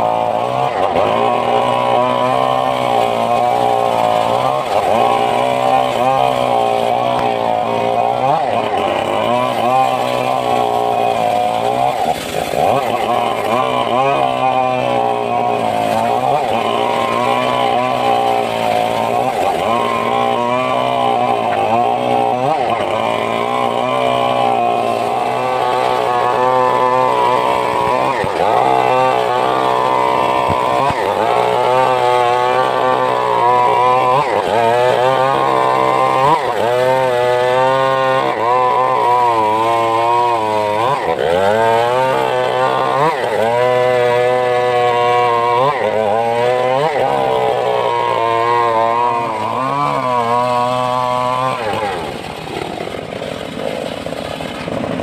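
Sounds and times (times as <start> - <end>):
table saw cutting wood: 0.0 - 55.0.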